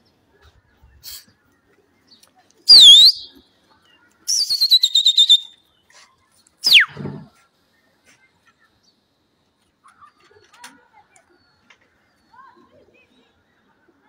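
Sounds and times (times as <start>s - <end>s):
man whistling loudly: 2.7s - 3.3s, 4.3s - 5.5s, 6.7s - 6.9s.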